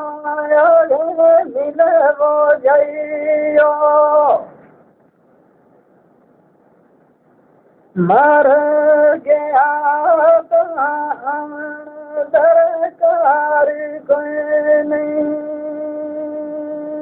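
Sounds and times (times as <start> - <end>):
man singing folk verse: 0.0 - 4.5, 8.0 - 17.0.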